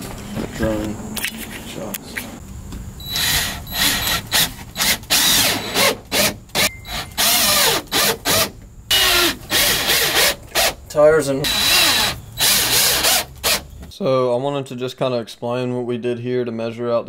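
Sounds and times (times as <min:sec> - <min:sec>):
cordless drill whirring: 0:03.0 - 0:10.8, 0:11.4 - 0:13.6.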